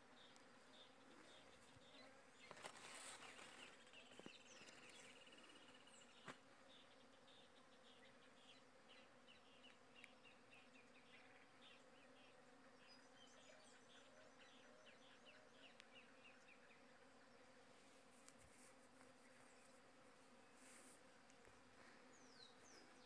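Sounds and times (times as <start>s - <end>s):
faint insect buzzing: 0.0s - 23.0s.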